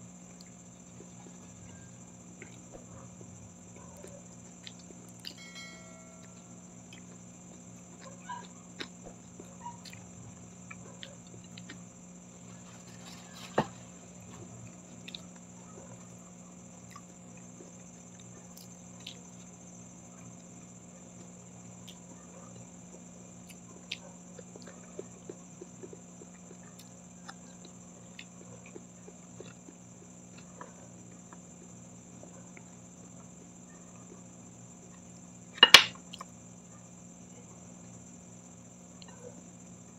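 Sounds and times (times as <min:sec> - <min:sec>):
steady low hum: 0:00.0 - 0:39.9
crispy fish chewing crackles: 0:03.5 - 0:05.4, 0:16.5 - 0:32.0.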